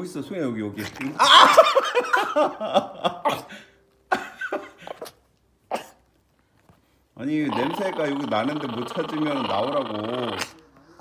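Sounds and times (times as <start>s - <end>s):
small dog grumbling: 7.4s - 10.7s.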